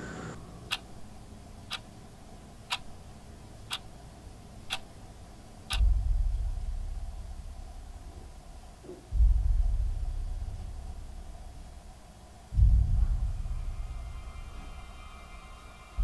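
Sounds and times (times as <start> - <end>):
wall clock ticking: 0.7 - 0.9, 1.6 - 1.9, 2.7 - 3.0, 3.7 - 3.9, 4.6 - 5.0, 5.6 - 6.0
loud deep rumble: 5.8 - 8.4, 9.1 - 11.9, 12.5 - 16.0.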